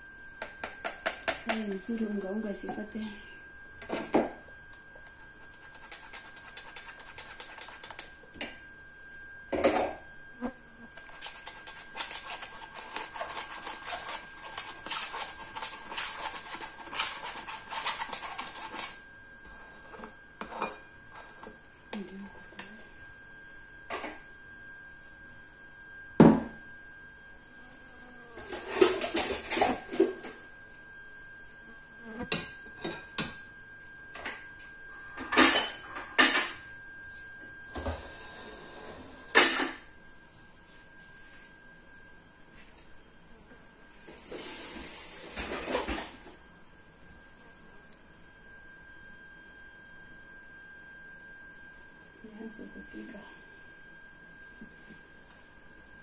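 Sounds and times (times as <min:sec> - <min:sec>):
spoon scraping batter through strainer: 0:11.0 - 0:18.9.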